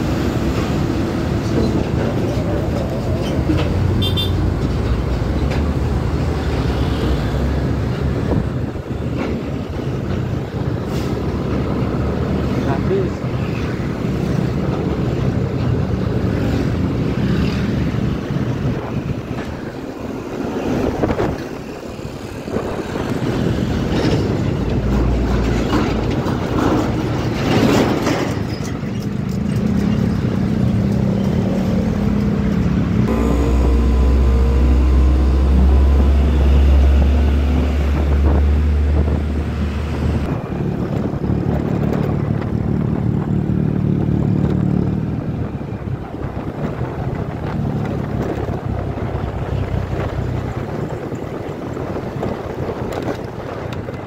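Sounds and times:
motorcycles and trucks in traffic: 0.0 - 54.0
deep rumble: 32.8 - 51.3
motor scooter engine running: 33.1 - 37.5.

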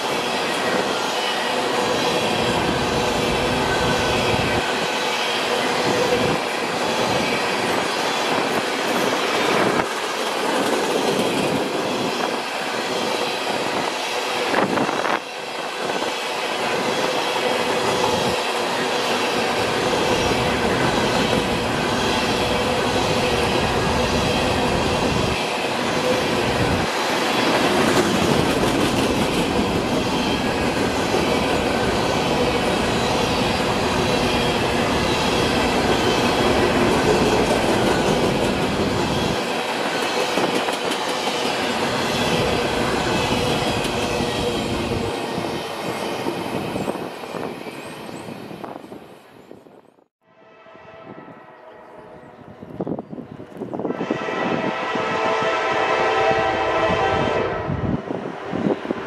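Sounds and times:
steel wheels on rail: 0.0 - 49.8
clatter of freight cars: 26.0 - 31.7, 35.2 - 45.1.

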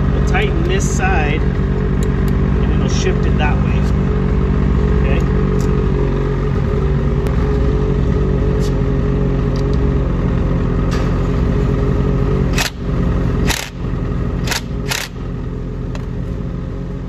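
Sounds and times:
snowmobile engine idling: 0.0 - 17.0
sharp clicks: 14.4 - 15.2.

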